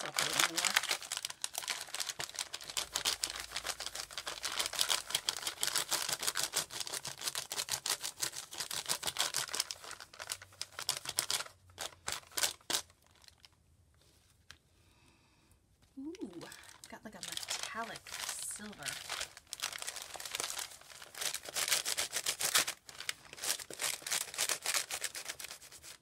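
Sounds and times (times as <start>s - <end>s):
oil pastel scribbling on paper: 3.6s - 9.8s, 23.4s - 26.0s.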